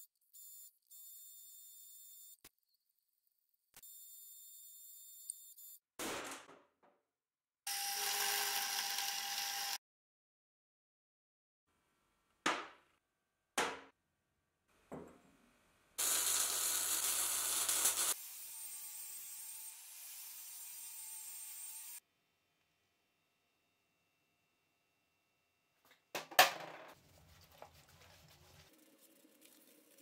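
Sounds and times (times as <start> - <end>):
angle grinder cutting steel: 7.7 - 9.8, 16.0 - 22.0
power tool running: 7.7 - 9.8, 16.0 - 18.3.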